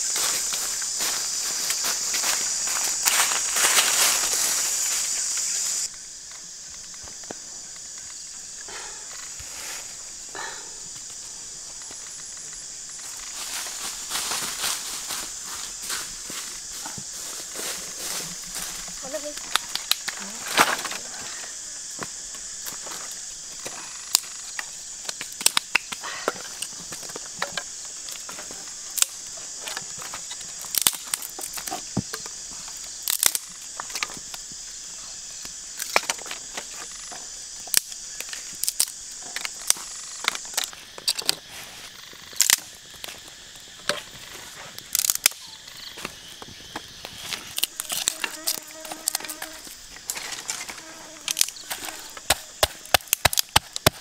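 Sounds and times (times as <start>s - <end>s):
steady high hiss: 0.0s - 54.0s
sticks snapping and clattering: 19.4s - 21.0s, 24.1s - 32.3s, 33.0s - 34.1s, 35.8s - 36.7s, 37.6s - 41.4s, 42.3s - 43.2s, 44.8s - 45.4s, 47.0s - 54.0s.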